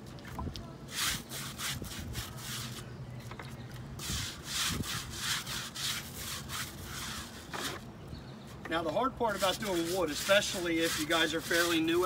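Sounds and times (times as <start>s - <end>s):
scrub brush scrubbing wood: 4.0s - 7.8s, 9.2s - 12.0s.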